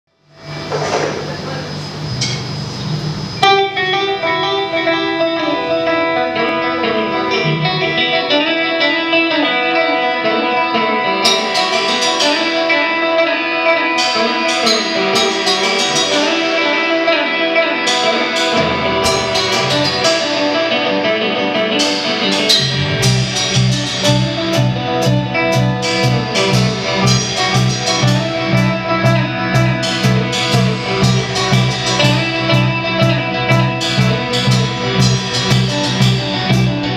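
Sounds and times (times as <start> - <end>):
electric guitar ringing notes: 0.2 - 36.9
drum and cymbal hits: 11.2 - 12.8, 13.9 - 21.0, 21.6 - 36.9
pulsing bass line: 18.5 - 36.9.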